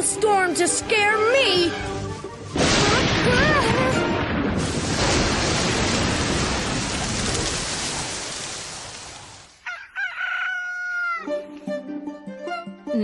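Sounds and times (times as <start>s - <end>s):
rain and wind rushing: 1.1s - 9.6s.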